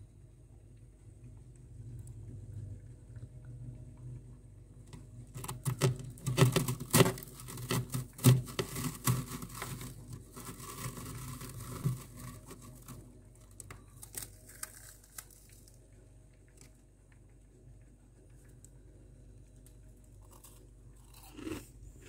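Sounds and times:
frost crunching under hand: 5.4s - 16.8s
rustling scrapes: 6.9s - 13.0s.

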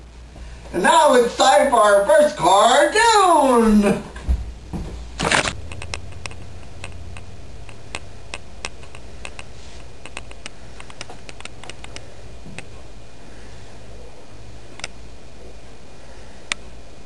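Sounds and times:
steady low hum: 0.0s - 17.0s
faint irregular clicks: 5.7s - 12.7s, 14.8s - 15.0s.

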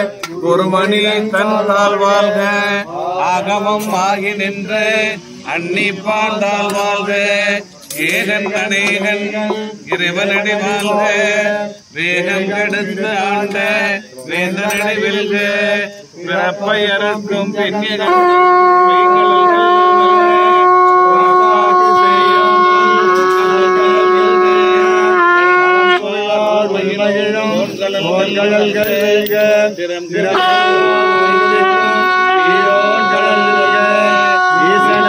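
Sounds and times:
conch shell blown: 3.8s - 4.2s, 5.0s - 11.5s, 16.9s - 26.4s, 27.5s - 35.0s.

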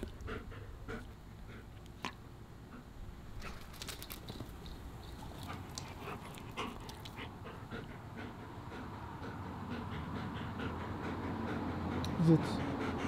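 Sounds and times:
dog panting: 0.0s - 3.6s, 5.0s - 13.0s
short clicks and rustles: 3.4s - 5.9s.

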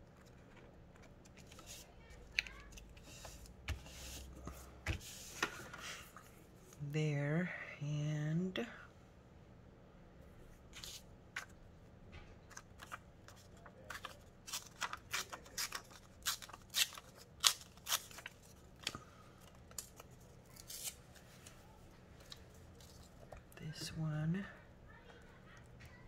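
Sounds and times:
scissors snipping paper: 13.9s - 18.5s.

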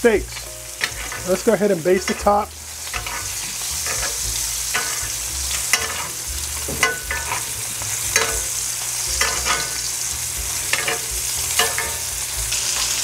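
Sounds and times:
steaks sizzling in butter: 0.0s - 13.0s
metal spoon clinking on pan: 2.9s - 3.2s, 3.8s - 5.1s, 5.7s - 7.5s, 8.1s - 8.6s, 9.2s - 9.8s, 10.7s - 12.1s.

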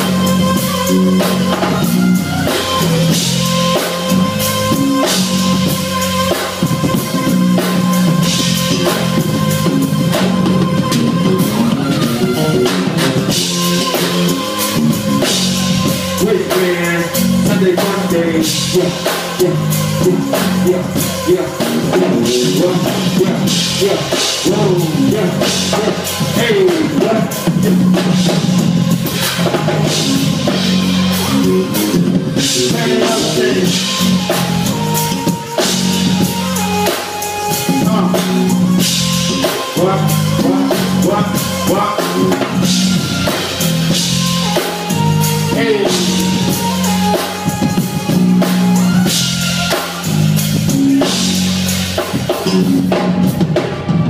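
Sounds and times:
bass line: 0.0s - 54.0s
drum kit: 0.0s - 54.0s
keyboards: 0.0s - 54.0s
man singing: 15.0s - 28.4s, 29.5s - 34.8s, 37.5s - 43.4s, 45.5s - 47.6s.

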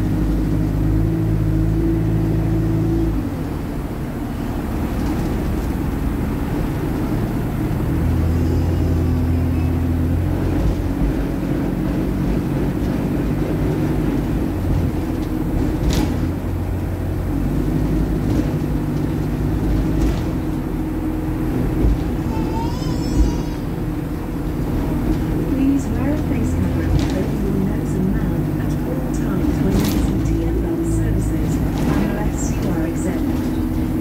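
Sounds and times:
bus diesel engine droning: 0.0s - 34.0s
bus body rattle knocks: 9.9s - 34.0s.

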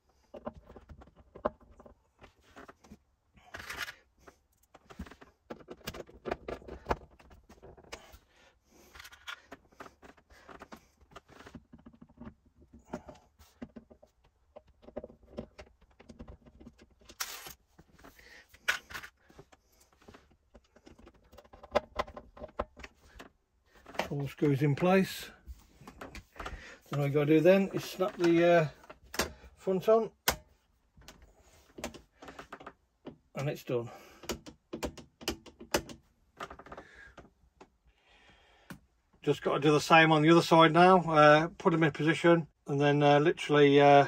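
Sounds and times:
screwdriver clicking and scraping: 3.4s - 7.0s, 13.6s - 24.1s.

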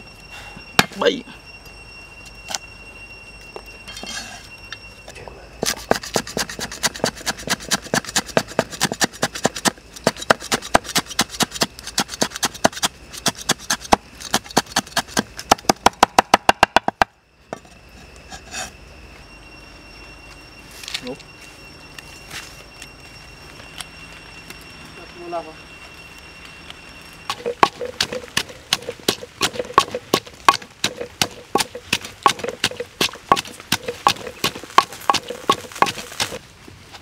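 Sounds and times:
cleaver chopping on wooden board: 27.3s - 36.4s.

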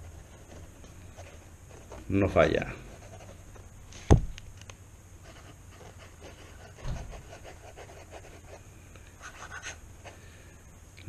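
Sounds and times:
fountain pen scratching on paper: 2.9s - 3.4s, 5.3s - 8.6s, 9.2s - 9.8s
soft bump: 4.0s - 4.4s.

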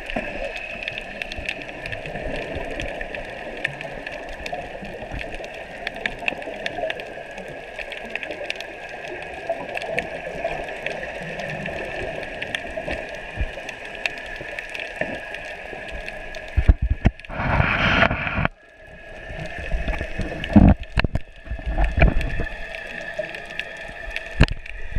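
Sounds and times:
steady underwater hum: 0.0s - 24.9s
water rushing and splashing: 0.0s - 24.9s
faint clicks: 0.1s - 17.3s.

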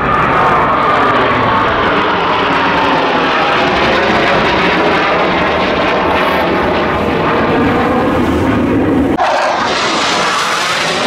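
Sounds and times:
jet engines flying overhead: 0.0s - 11.0s.

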